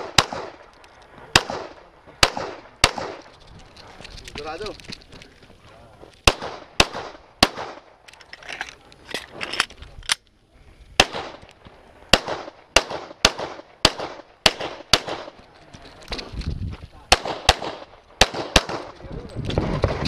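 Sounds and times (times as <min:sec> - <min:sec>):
pistol shots: 0:00.0 - 0:00.7, 0:01.3 - 0:03.3, 0:06.2 - 0:08.0, 0:11.0 - 0:11.5, 0:12.1 - 0:15.4, 0:17.1 - 0:19.0.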